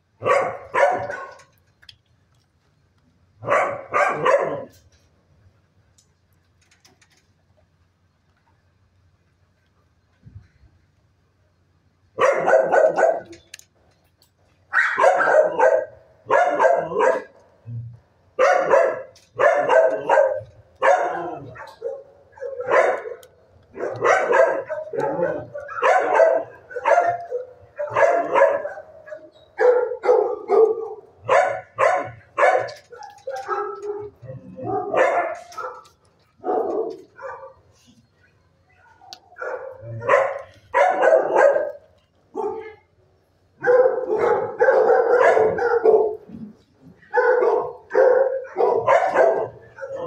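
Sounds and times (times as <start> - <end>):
dogs barking: 0.2 - 1.6, 3.4 - 4.9, 12.2 - 13.5, 14.7 - 17.5, 18.4 - 37.9, 38.8 - 42.9, 43.6 - 50.0.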